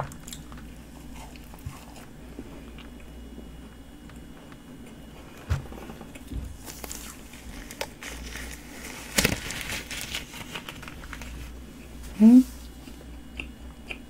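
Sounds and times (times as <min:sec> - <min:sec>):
plastic glove rustling: 0:06.5 - 0:13.0.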